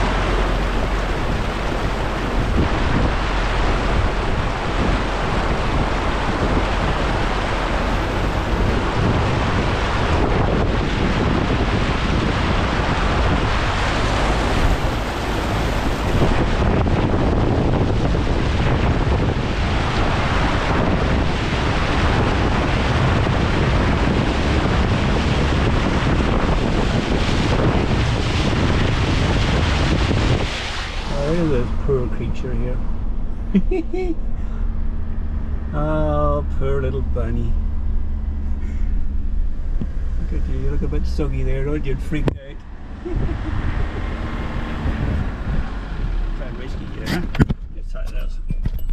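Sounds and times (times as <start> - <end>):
wind buffeting microphone: 0.0 - 36.0, 37.0 - 48.9
floodwater rushing and splashing: 0.0 - 47.5.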